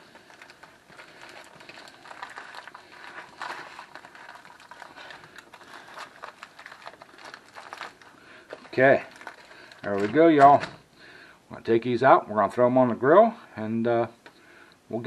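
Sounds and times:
aluminium foil crinkling: 0:00.0 - 0:10.8.

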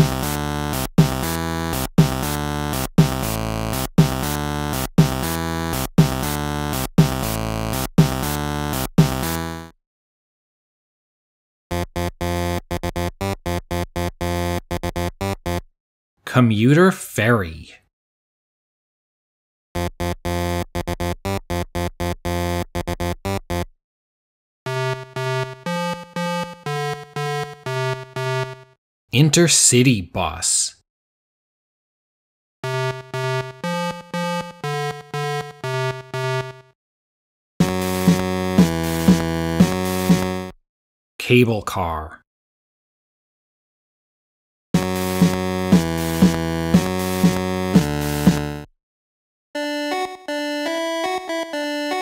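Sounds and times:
looping synthesizer music: 0:00.0 - 0:09.7, 0:24.7 - 0:28.7, 0:32.6 - 0:36.7, 0:37.6 - 0:40.5, 0:44.8 - 0:48.7, 0:49.6 - 0:52.0
synthesizer jingle: 0:32.8 - 0:36.6, 0:49.6 - 0:52.0.

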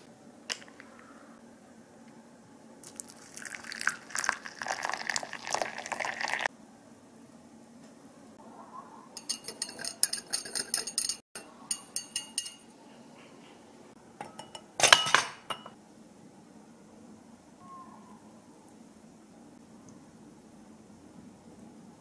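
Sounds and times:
spoon clinking against glass: 0:09.2 - 0:12.7.

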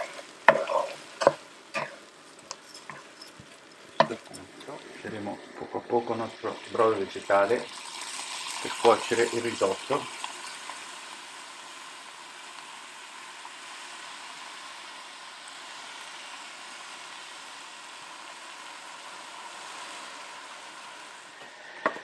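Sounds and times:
rice and onion sizzling in oil: 0:00.0 - 0:22.0.

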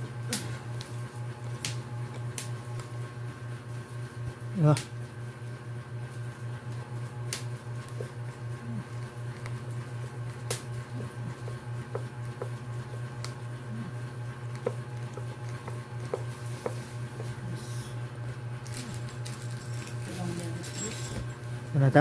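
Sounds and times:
low pulsing hum: 0:04.4 - 0:21.8.

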